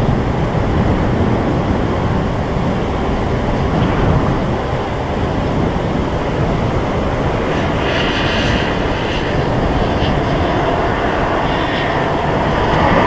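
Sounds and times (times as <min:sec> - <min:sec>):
high jet whine: 0:00.0 - 0:13.0
jet engine rumble: 0:00.0 - 0:13.0.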